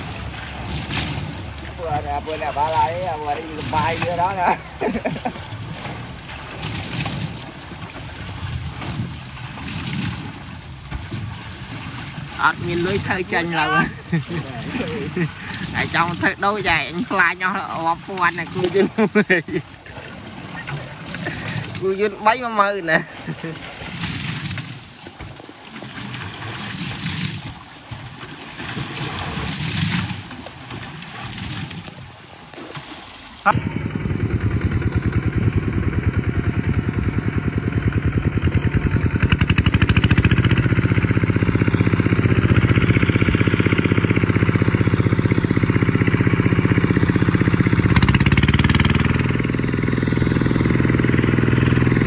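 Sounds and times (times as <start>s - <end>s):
diesel engine running: 33.5s - 52.0s.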